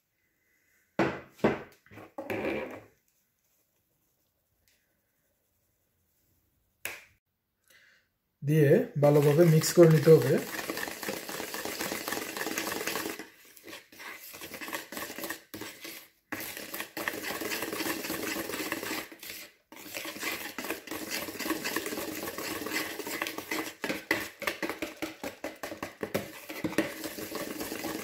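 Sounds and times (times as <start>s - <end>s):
whisk beating batter in bowl: 9.0s - 28.0s.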